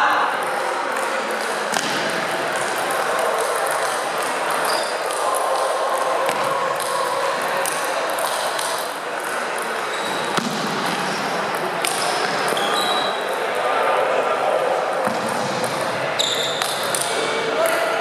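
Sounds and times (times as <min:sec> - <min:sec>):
echoing hubbub of sports hall: 0:00.0 - 0:18.0
table tennis ball hits: 0:01.0 - 0:07.0.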